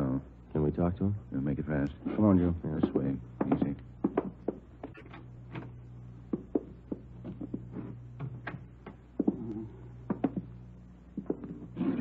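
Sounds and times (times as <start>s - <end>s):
steady low hum: 0.0s - 12.0s
footsteps on hard floor: 3.4s - 11.8s.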